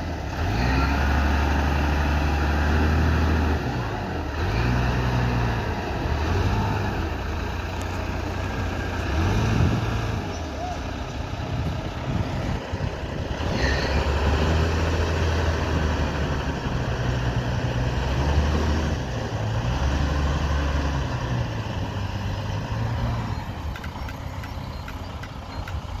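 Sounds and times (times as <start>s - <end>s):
wheel loader diesel engine: 0.0s - 26.0s
brief squeal: 13.5s - 14.2s.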